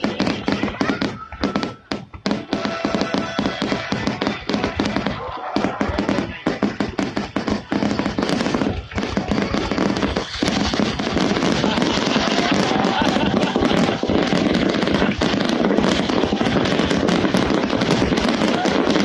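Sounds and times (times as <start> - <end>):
fireworks bursting and crackling: 0.0 - 19.0.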